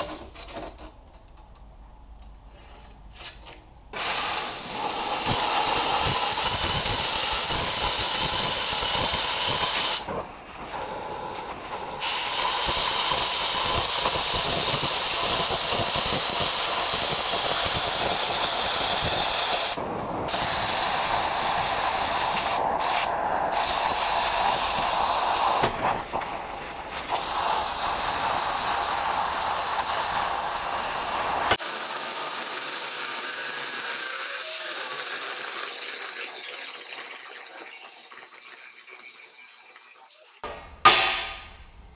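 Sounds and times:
angle grinder on steel: 4.0 - 10.2, 27.1 - 37.3
cutting torch hissing: 4.0 - 35.2.

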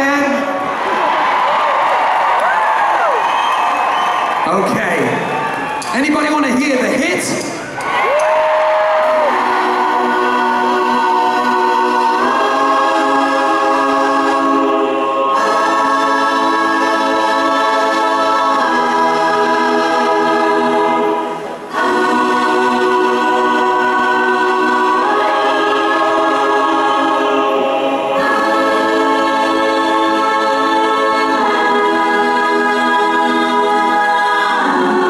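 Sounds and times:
choir singing held chords: 7.4 - 35.0.

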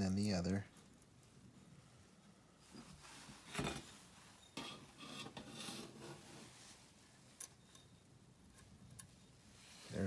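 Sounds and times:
faint metal scraping: 2.6 - 10.0.

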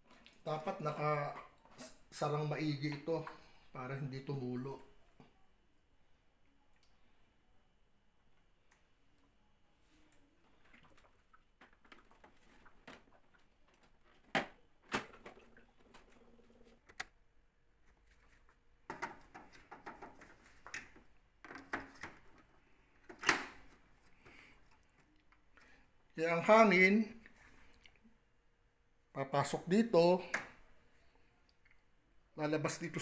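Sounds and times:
plastic clicks and snaps: 16.8 - 17.2.

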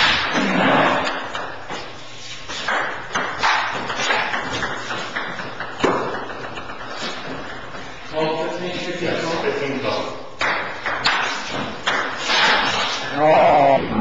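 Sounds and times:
ping-pong balls knocking: 2.5 - 8.0, 10.4 - 12.3.

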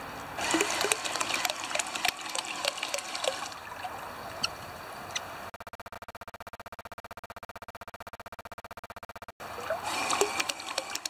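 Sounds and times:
water splashing around toy boat: 0.4 - 4.1, 9.4 - 11.0
water dripping: 0.4 - 4.5, 9.6 - 11.0.

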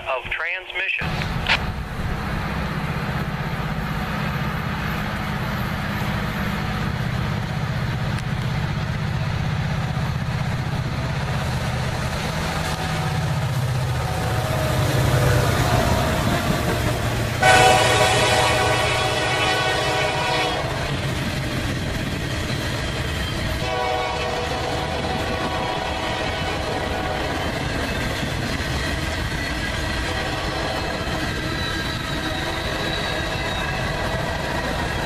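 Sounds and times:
boxcars rolling on rails: 0.0 - 35.0
locomotive engines rumbling: 0.0 - 35.0
train horn: 17.4 - 20.9, 23.6 - 27.5, 30.0 - 31.1.

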